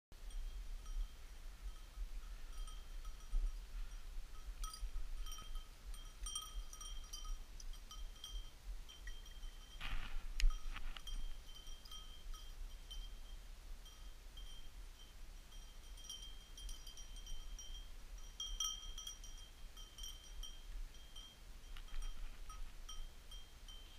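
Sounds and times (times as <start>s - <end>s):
small bell tinkling: 0.2s - 23.9s
rustle with sharp clicks: 4.6s - 12.1s, 19.9s - 23.1s.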